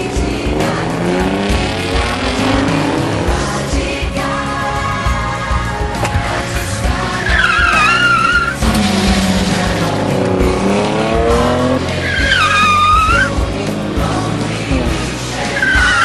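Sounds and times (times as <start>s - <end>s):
car engine revving: 0.0s - 16.0s
tyres squealing: 7.0s - 10.2s, 11.0s - 13.4s, 14.9s - 16.0s.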